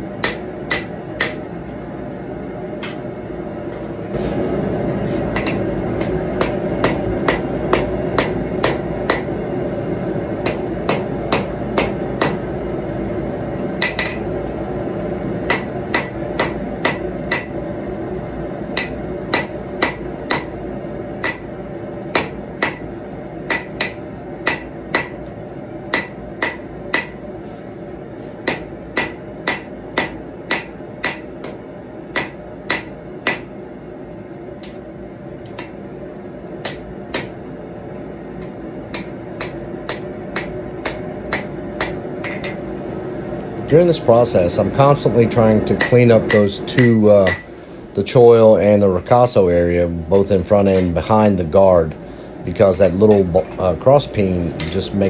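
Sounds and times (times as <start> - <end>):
gas forge roaring: 0.0 - 32.0, 33.8 - 55.0
hammer striking hot steel on anvil: 0.2 - 1.5, 5.3 - 9.4, 10.4 - 12.4, 13.8 - 14.3, 15.4 - 17.6, 18.7 - 20.6, 21.2 - 25.3, 25.9 - 27.2, 28.4 - 33.6, 36.6 - 37.4, 38.4 - 42.6, 43.8 - 47.5, 53.0 - 54.9.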